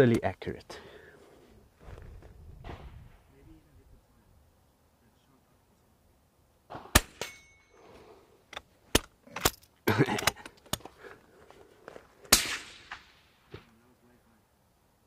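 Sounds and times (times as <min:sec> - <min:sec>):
rifle shot crack: 0:02.6 - 0:03.3, 0:06.7 - 0:07.4, 0:12.3 - 0:13.8.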